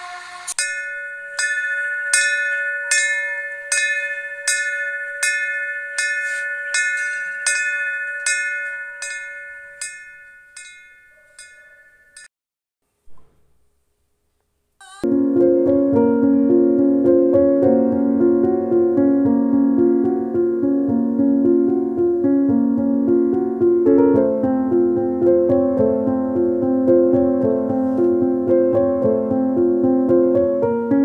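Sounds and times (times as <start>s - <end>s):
bell ringing: 0.5s - 12.3s.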